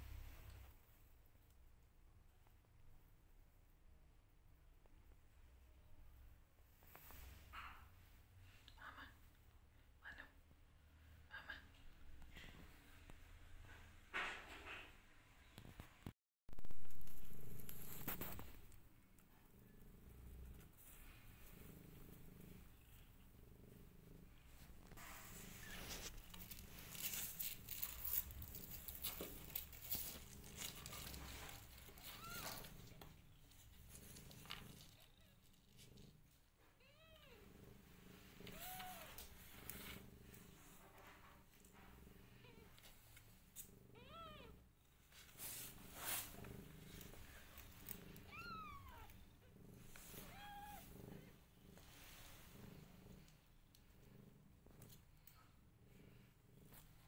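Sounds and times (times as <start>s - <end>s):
cat purring: 10.5s - 57.0s
rustling and crinkling: 15.6s - 23.2s, 24.3s - 36.8s, 37.7s - 43.8s, 44.9s - 55.5s.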